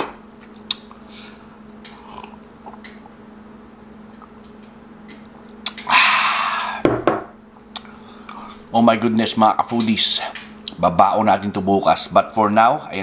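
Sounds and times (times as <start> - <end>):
breathy exhale: 5.9 - 6.8
glass set down knock: 6.9 - 7.3.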